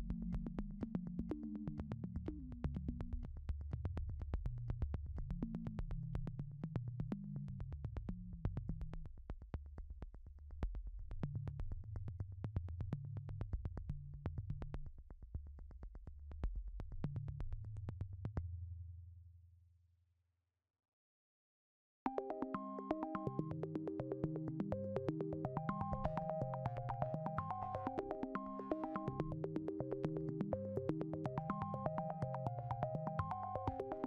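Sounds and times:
ticking electronic beat: 22.1s - 34.0s.

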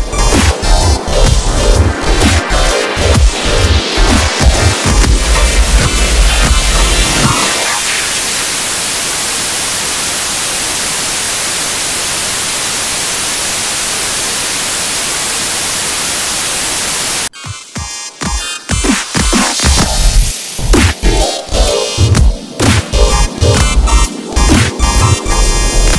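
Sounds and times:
television static hiss: 5.9s - 17.3s.

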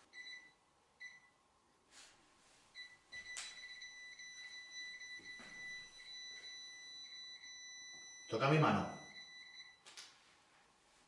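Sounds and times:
electronic detector beeping: 2.8s - 9.8s.

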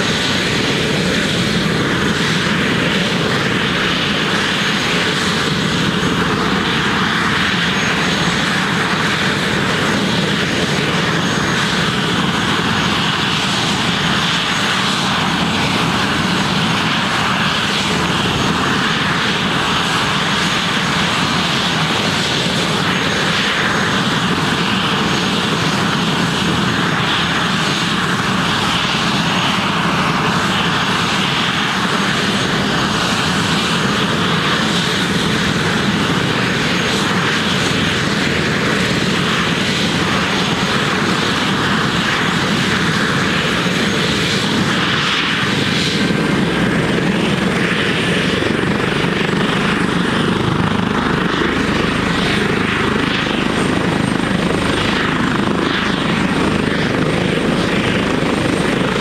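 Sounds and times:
helicopter rotor and engine noise: 0.0s - 59.0s
high turbine whine: 0.0s - 59.0s.

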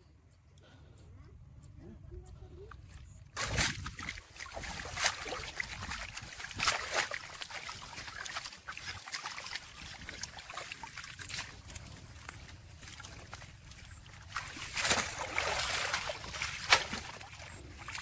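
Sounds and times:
water sloshing and splashing: 2.6s - 18.0s
sharp slaps on water: 3.4s - 10.3s, 14.7s - 17.2s.

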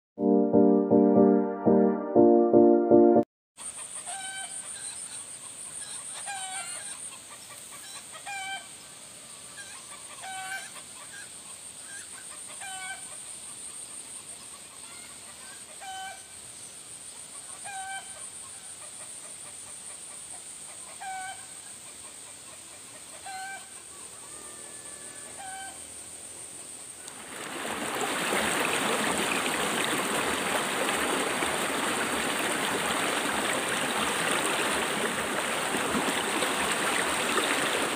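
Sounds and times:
river rushing: 27.1s - 37.9s.

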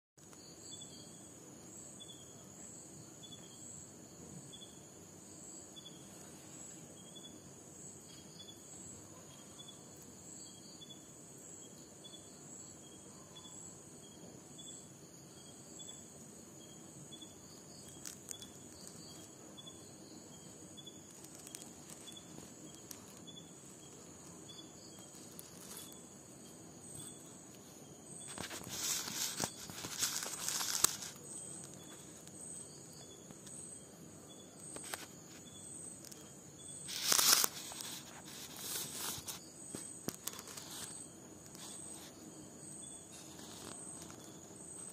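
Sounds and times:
crickets chirping: 0.2s - 44.9s
rustling noise: 6.0s - 7.0s, 20.9s - 33.6s, 34.6s - 44.9s.

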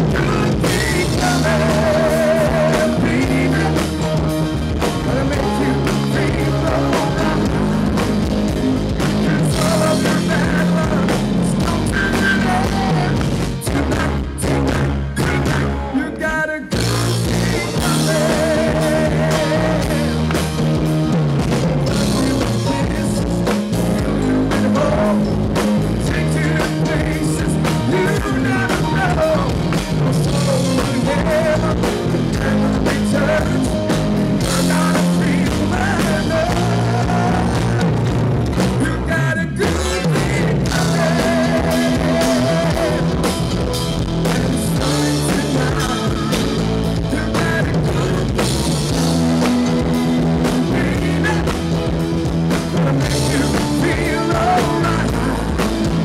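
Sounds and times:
live rock band playing: 0.0s - 56.0s
man singing lead vocals: 0.0s - 56.0s.

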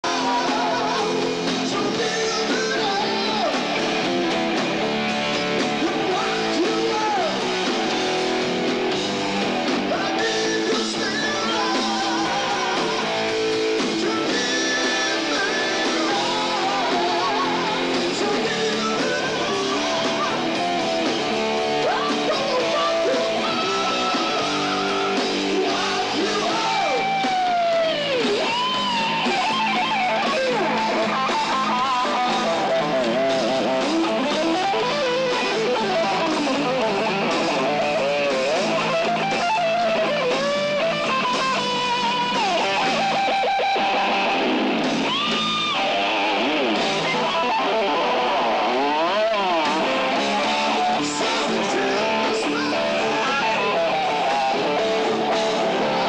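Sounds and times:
live rock band playing: 0.0s - 56.0s
sliding bent guitar lead line: 0.0s - 56.0s.

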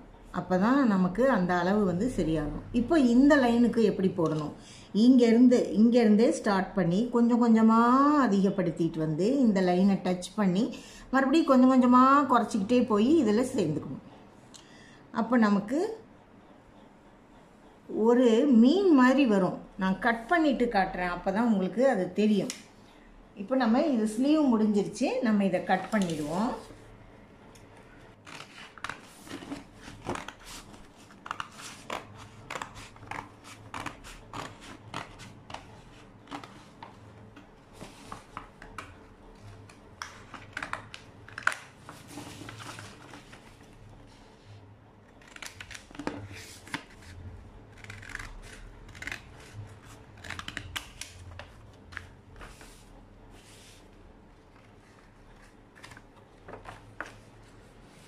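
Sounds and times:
scissors snipping paper: 28.2s - 36.5s, 45.2s - 47.0s, 47.7s - 51.2s.

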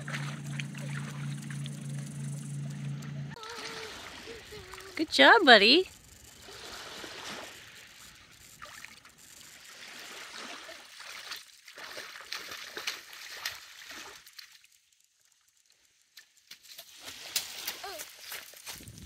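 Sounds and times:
water splashing among rocks: 8.6s - 14.6s.

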